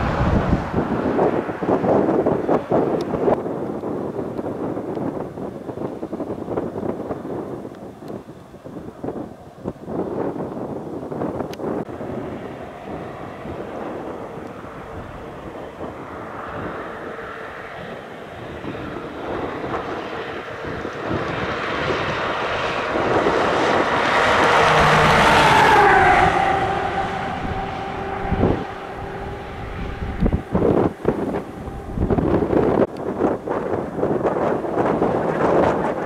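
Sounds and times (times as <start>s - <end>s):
engine passing by: 0.0s - 3.4s, 11.8s - 36.0s
wind noise: 0.0s - 36.0s.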